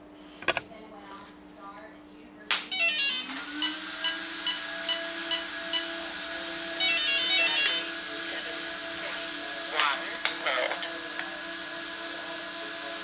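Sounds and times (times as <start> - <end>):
cooling fan whine: 0.0 - 13.0
electronic start-up tones: 2.8 - 6.0, 6.8 - 7.9.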